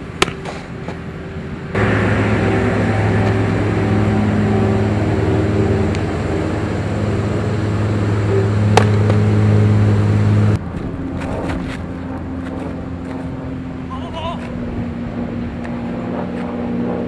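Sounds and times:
mechanical hum with low drone: 0.0s - 17.0s
sharp crack: 8.7s - 9.3s.

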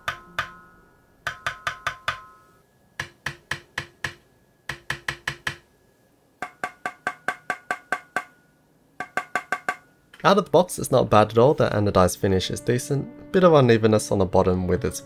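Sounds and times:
metallic ping ringing: 0.0s - 2.6s.

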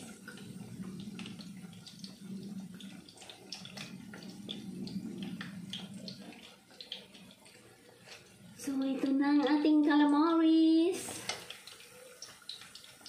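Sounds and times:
steady low hum: 0.0s - 10.3s
food deep-frying in hot oil: 0.0s - 13.0s.

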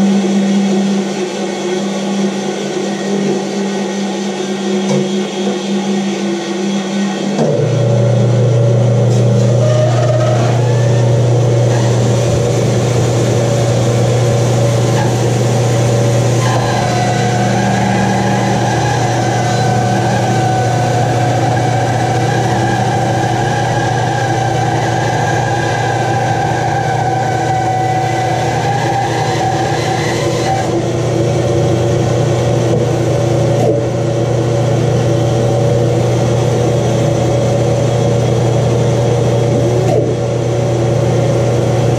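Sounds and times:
high steady whine: 0.0s - 41.9s
bandsaw cutting wood: 9.1s - 31.0s.

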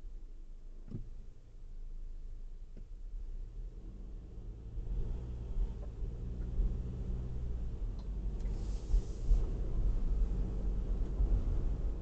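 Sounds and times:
car cabin road rumble: 0.0s - 12.0s
brief hiss: 8.4s - 9.4s.

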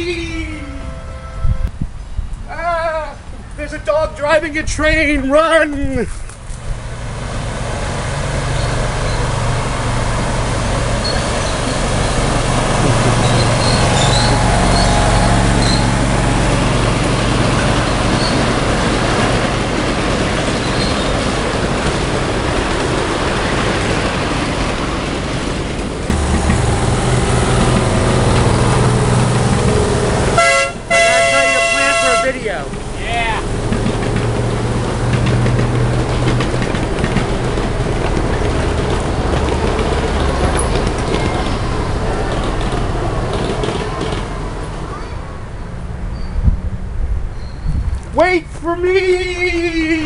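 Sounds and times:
train rumbling in tunnel: 0.0s - 50.0s
miniature train rumbling on rails: 2.3s - 50.0s
low hum: 26.1s - 43.0s.

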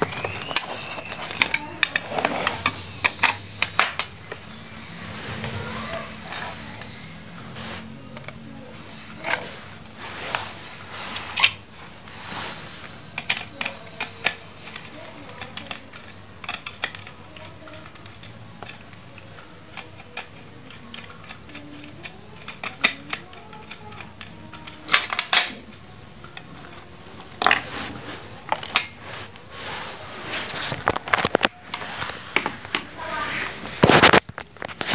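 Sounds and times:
screwdriver clicking on screws: 0.0s - 4.2s, 13.2s - 25.6s.

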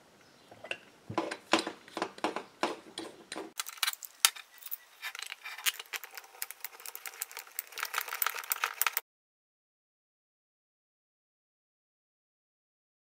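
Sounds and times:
metal tool parts clicking: 3.6s - 9.0s.

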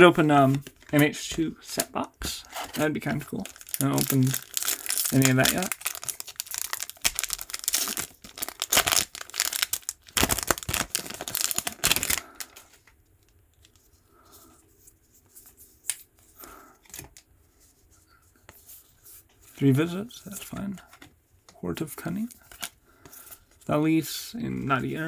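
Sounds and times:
foil wrapper tearing and crinkling: 3.5s - 12.6s
cards rustling and clicking: 14.8s - 17.7s.

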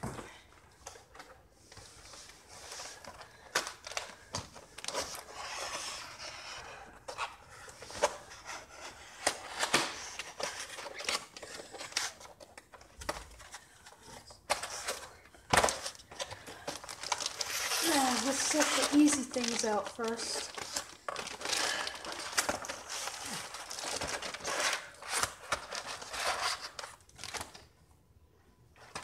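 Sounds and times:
cardboard rustling and scraping: 1.1s - 27.4s.

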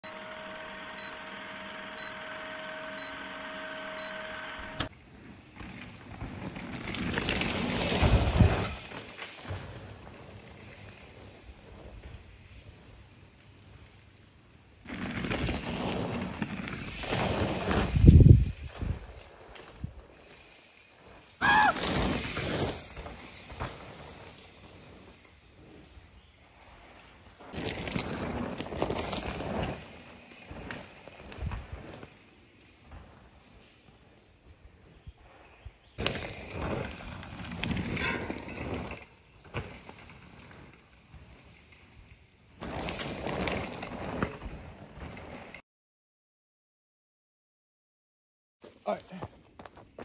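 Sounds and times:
mountain bike tyres on dirt trail: 0.0s - 45.6s, 48.6s - 50.0s
old film hum with crackle: 0.1s - 4.9s.

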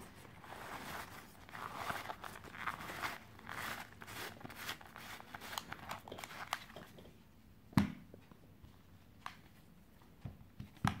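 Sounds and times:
fabric rustling: 0.0s - 6.6s.

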